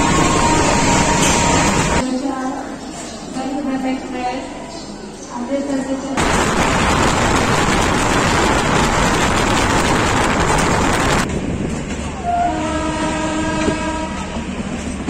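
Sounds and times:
locomotive horn: 0:00.0 - 0:02.0, 0:12.2 - 0:14.4
train rushing rail noise: 0:00.0 - 0:15.0.

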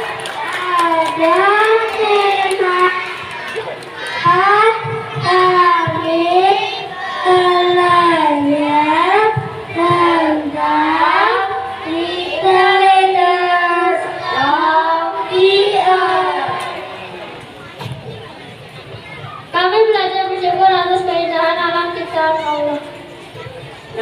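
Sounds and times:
children singing in unison: 0:00.0 - 0:17.1.

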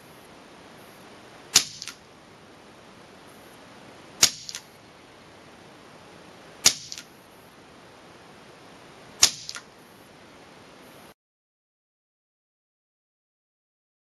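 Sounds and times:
air rifle shots: 0:01.5 - 0:02.0, 0:04.2 - 0:04.8, 0:06.6 - 0:07.1, 0:09.2 - 0:09.8.

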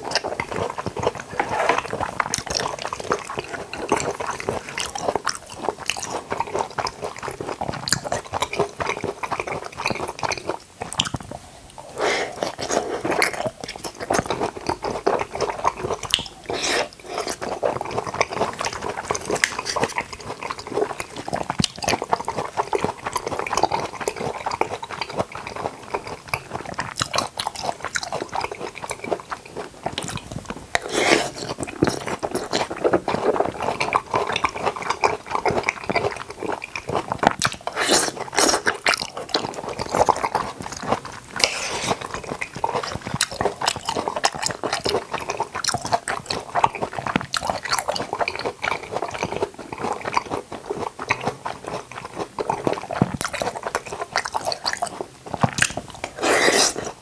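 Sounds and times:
chewing and biting fruit: 0:00.0 - 0:57.0.

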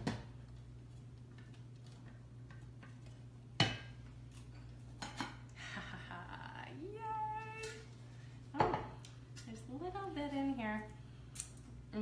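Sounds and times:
steady low hum: 0:00.2 - 0:12.0.

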